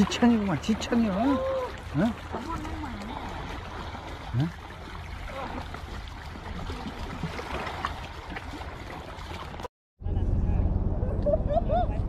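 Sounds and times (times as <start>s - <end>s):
water lapping and splashing: 0.0s - 9.7s
low rumble: 10.0s - 12.0s.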